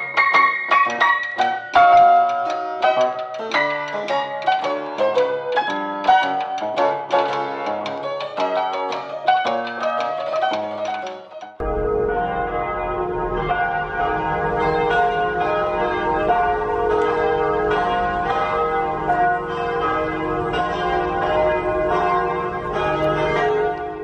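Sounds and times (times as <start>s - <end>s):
low rumble: 11.6s - 20.4s
church bells pealing: 11.6s - 24.0s.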